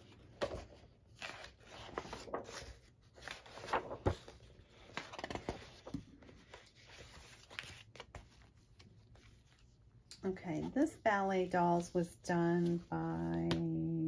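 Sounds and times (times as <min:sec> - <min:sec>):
paper pages turning: 0:00.0 - 0:09.8.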